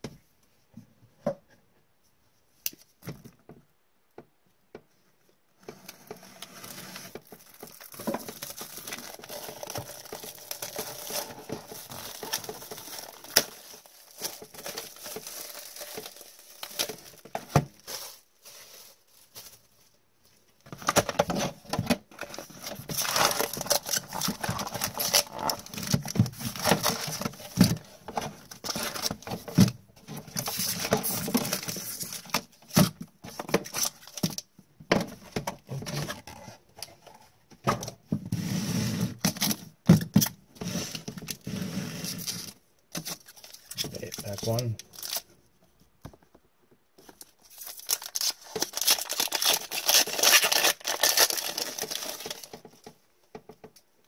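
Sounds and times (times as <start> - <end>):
plastic wrap tearing and crinkling: 6.0 - 19.7, 20.8 - 33.0, 39.1 - 45.3, 47.0 - 52.9
card packs rustling: 7.0 - 19.7, 20.8 - 32.7, 42.3 - 45.3, 47.0 - 52.9.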